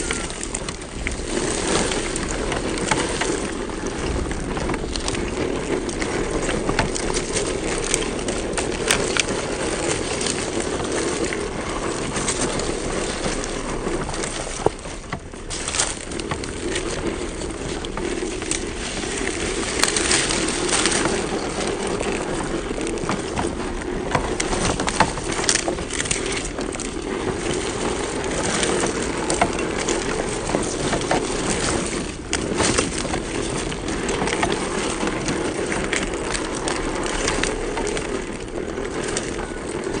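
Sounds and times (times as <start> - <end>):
tyres crunching over leaves: 0.0 - 40.0.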